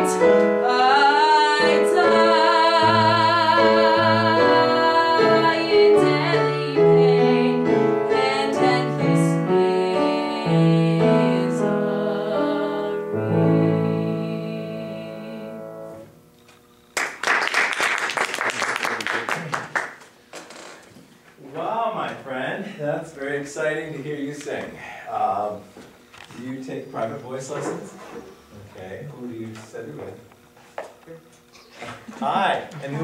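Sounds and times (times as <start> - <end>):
piano accompaniment: 0.0 - 16.2
applause: 17.0 - 20.1.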